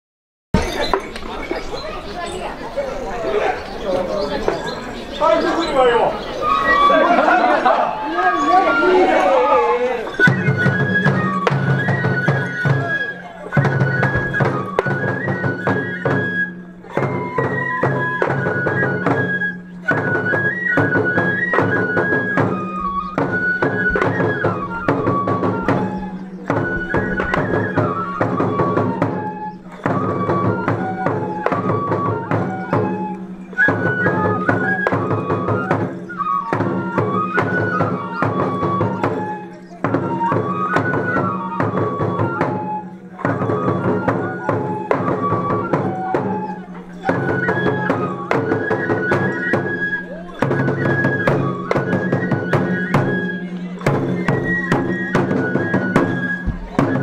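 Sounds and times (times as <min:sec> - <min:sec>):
bamboo flutes playing melody: 0:00.6 - 0:57.0
taiko drum beats: 0:04.3 - 0:57.0.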